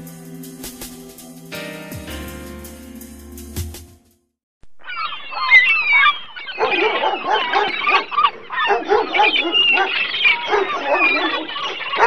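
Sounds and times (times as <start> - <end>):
dogs barking and yipping: 4.9 - 12.0.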